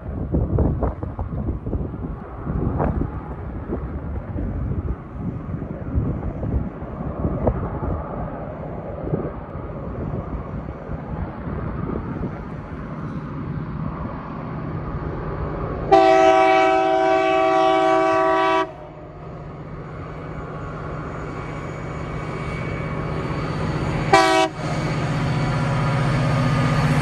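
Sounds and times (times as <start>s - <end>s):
diesel locomotive rumble: 0.0s - 27.0s
locomotive horn blast: 15.9s - 19.0s, 24.1s - 24.7s.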